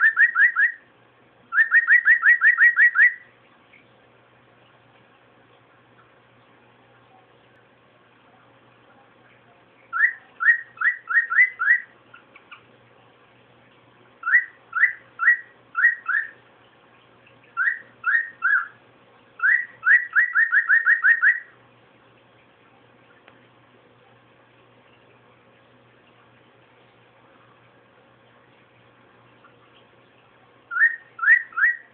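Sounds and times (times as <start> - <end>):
cockatiel whistling: 0.0 - 0.8, 1.5 - 3.3, 9.9 - 11.9, 14.2 - 16.4, 17.6 - 18.8, 19.4 - 21.5, 30.7 - 31.9.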